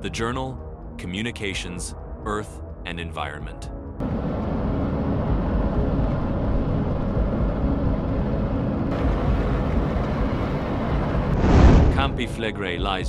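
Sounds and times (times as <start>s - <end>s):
volcanic eruption rumble: 4.0s - 12.4s.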